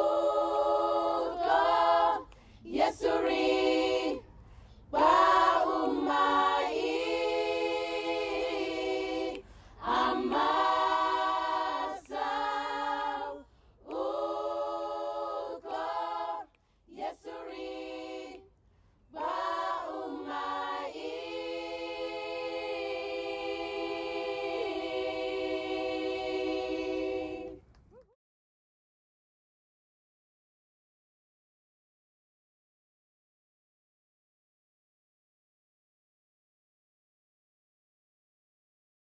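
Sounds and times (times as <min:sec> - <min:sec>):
choir singing unaccompanied: 0:00.0 - 0:04.3, 0:04.9 - 0:18.5, 0:19.1 - 0:27.6.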